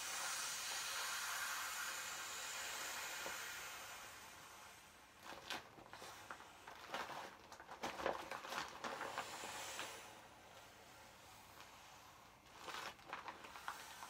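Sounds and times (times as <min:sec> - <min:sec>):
air hissing out: 0:00.0 - 0:05.2, 0:09.1 - 0:12.4
vinyl plastic crinkling: 0:05.2 - 0:09.5, 0:12.3 - 0:14.0.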